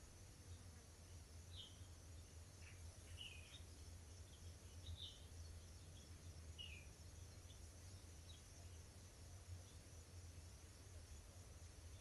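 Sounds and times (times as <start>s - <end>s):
faint high hiss: 0.0s - 12.0s
steady low hum: 0.0s - 12.0s
birds chirping: 0.4s - 8.9s.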